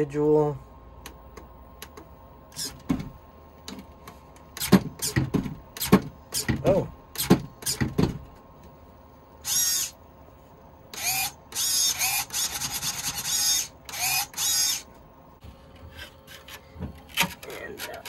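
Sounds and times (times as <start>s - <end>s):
servos whining: 1.0s - 3.2s, 9.4s - 10.0s, 10.9s - 15.0s.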